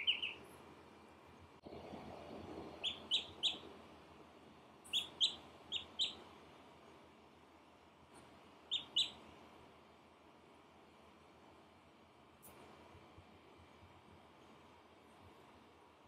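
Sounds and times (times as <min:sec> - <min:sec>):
duckling peeping: 0:00.0 - 0:00.5, 0:02.8 - 0:03.7, 0:04.8 - 0:06.3, 0:08.7 - 0:09.2.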